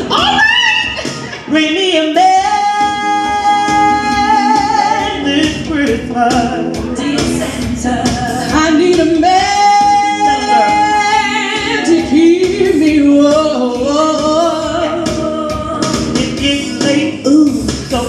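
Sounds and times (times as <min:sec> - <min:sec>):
backing music: 0:00.0 - 0:18.0
women singing into microphones: 0:00.0 - 0:18.0.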